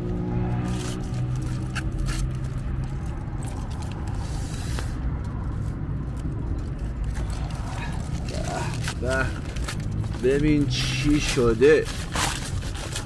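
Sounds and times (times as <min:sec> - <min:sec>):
foil crinkling: 0:07.0 - 0:13.0.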